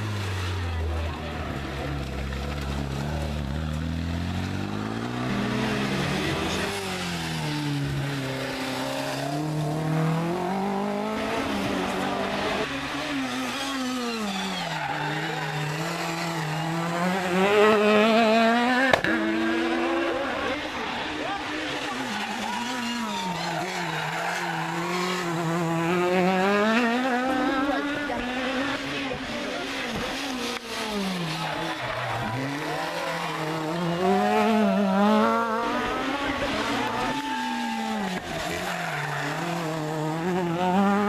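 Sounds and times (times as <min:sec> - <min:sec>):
rally car engines revving: 0:00.0 - 0:41.0.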